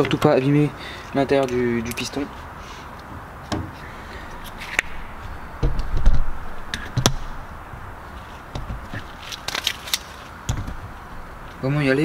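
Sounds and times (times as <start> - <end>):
dull knocks: 4.8 - 7.9, 8.5 - 9.1.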